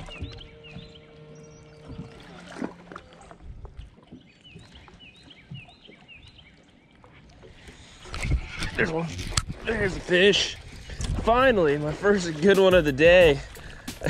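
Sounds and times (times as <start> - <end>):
small birds chirping: 3.7 - 7.1.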